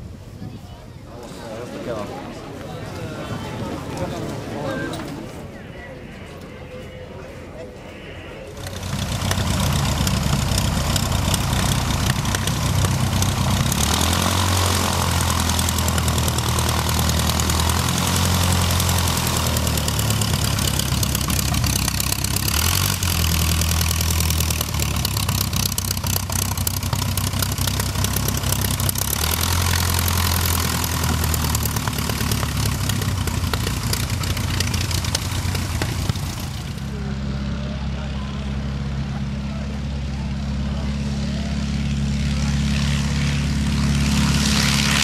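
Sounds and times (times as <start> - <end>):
propeller plane engine droning: 1.5 - 45.0.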